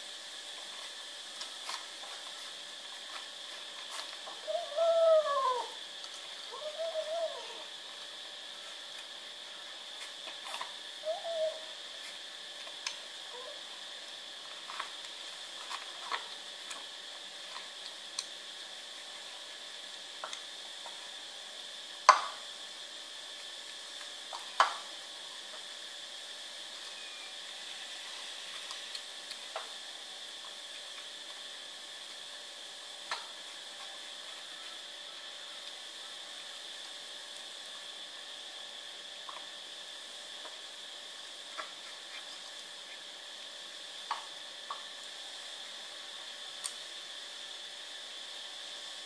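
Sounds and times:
steady hiss with high whine: 0.0 - 49.0
kitten crying: 4.6 - 5.8, 6.5 - 7.7.

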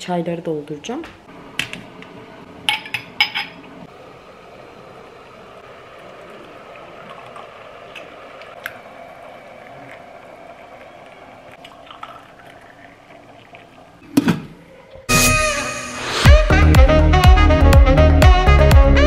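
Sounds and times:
tea being poured: 4.9 - 14.1.

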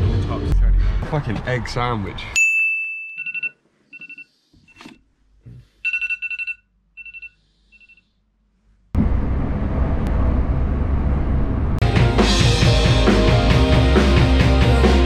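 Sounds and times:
phone alarm beeping: 3.0 - 4.9, 5.8 - 8.0.

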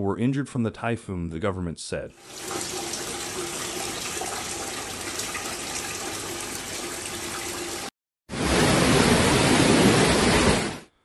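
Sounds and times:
water splashing into a metal pot: 2.2 - 7.9
rush of water: 2.2 - 10.8.

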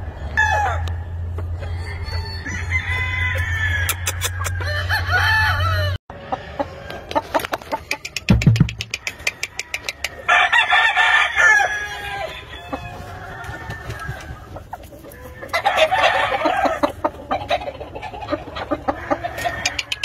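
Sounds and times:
rooster crowing: 0.2 - 1.0, 1.6 - 7.2, 8.9 - 14.6, 15.2 - 16.8, 18.8 - 20.0
chicken clucks: 0.7 - 5.4, 6.1 - 10.6, 11.9 - 20.0.

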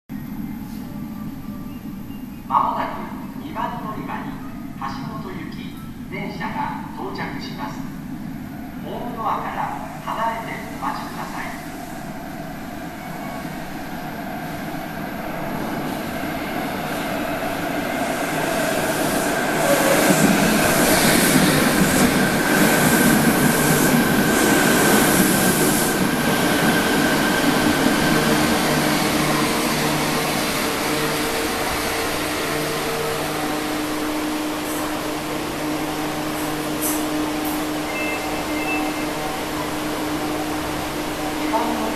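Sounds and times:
high train whine: 0.1 - 41.9
train pulling into station: 0.1 - 41.9
train braking motor tones: 36.8 - 39.6.

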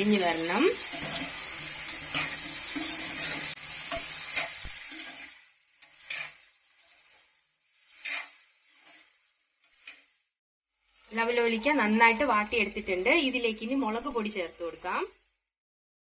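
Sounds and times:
food sizzling in hot oil: 0.0 - 15.5
metal spoon scraping: 0.1 - 10.2.

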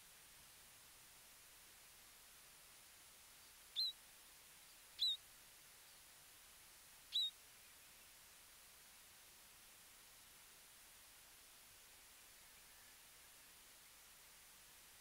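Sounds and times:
small bird chirping: 3.7 - 4.0, 4.6 - 5.2, 7.1 - 8.0.

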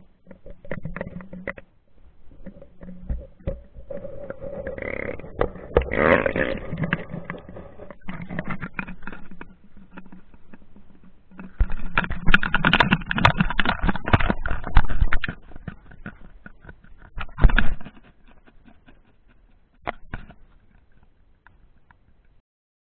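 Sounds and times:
muffled knocking and rattling of camera housing: 6.7 - 21.1.

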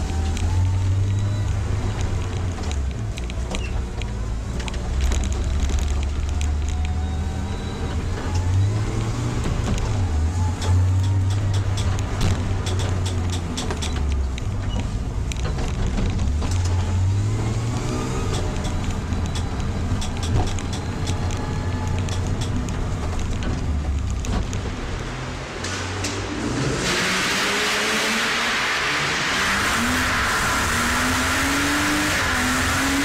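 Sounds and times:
car engine revving: 15.6 - 33.0.

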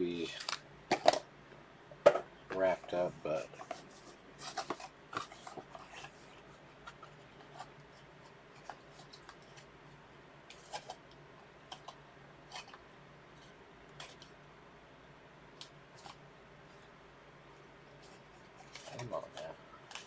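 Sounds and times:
card boxes and packaging handled: 2.1 - 9.8, 10.5 - 11.0, 11.7 - 14.3, 15.6 - 16.9, 17.9 - 20.0.

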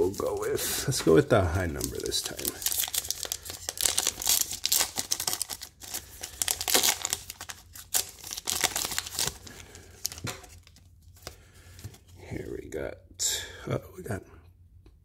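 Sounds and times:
plastic wrapper crinkling and tearing: 0.0 - 12.0.

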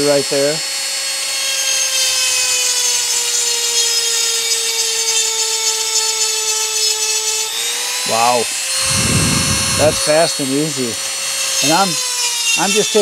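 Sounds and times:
rotary tool motor whine: 0.7 - 13.0
gritty grinding hiss: 8.1 - 13.0.

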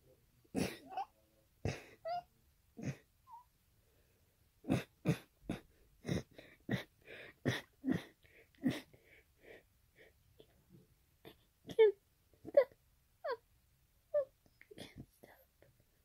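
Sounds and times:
person sneezing and coughing: 0.6 - 1.1, 1.7 - 2.1, 4.7 - 8.9.

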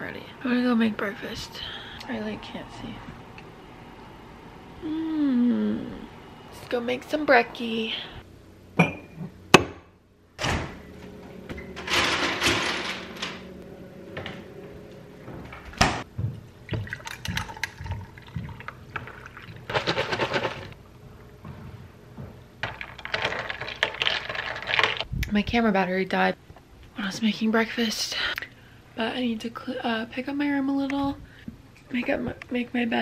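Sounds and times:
glass clinking: 8.8 - 9.2.

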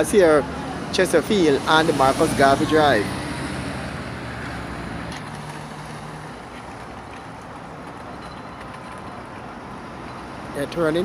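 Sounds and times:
vehicle driving past: 0.0 - 6.9
road noise: 0.0 - 11.0.

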